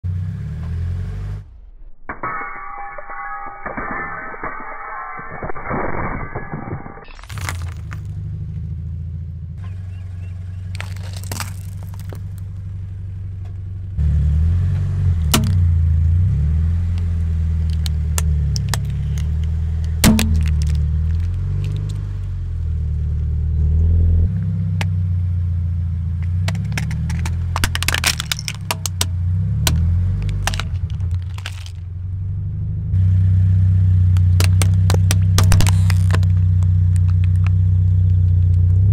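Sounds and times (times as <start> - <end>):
car engine at low revs: 0.0 - 1.8, 7.4 - 38.9
plastic items bursting under tyre: 10.7 - 12.5, 17.6 - 22.0, 26.2 - 31.9, 34.1 - 38.2.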